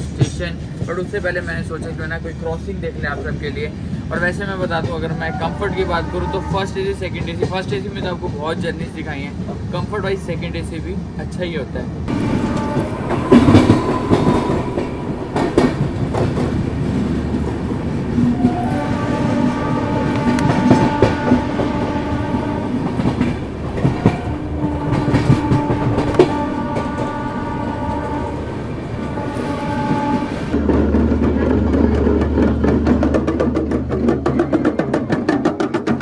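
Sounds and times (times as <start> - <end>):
train horn blasts: 5.2 - 7.0, 12.1 - 30.6
train wheels clattering: 12.1 - 36.0.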